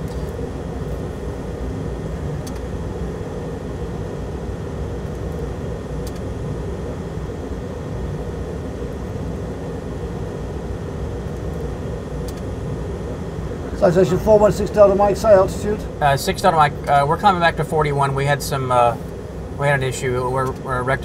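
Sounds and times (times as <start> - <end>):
jet cockpit rushing drone: 0.0 - 21.0
faint click: 2.4 - 2.6.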